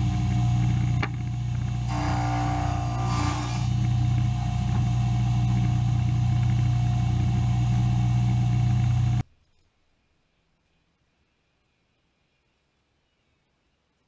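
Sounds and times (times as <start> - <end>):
low machine drone: 0.0 - 9.2.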